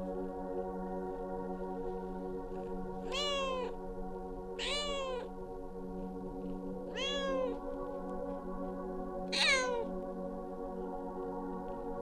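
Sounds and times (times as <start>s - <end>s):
cat meowing loudly: 3.1s - 3.7s, 4.6s - 5.3s, 7.0s - 7.6s, 9.4s - 9.9s.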